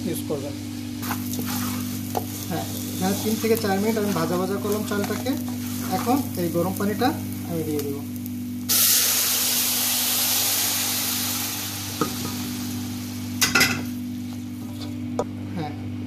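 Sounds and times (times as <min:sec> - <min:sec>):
wooden spoon scraping and stirring: 0:01.0 - 0:06.4
water sizzling in hot pan: 0:01.0 - 0:14.2.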